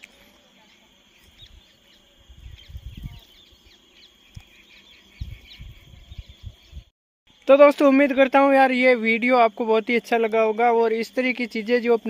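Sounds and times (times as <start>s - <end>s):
small birds chirping: 0.0s - 6.9s
high-pitched insect drone: 7.3s - 12.0s.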